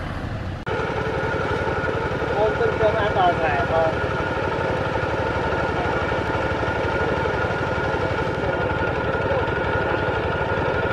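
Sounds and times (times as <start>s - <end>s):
steady whine: 0.0s - 10.9s
tractor diesel engine running: 0.0s - 10.9s.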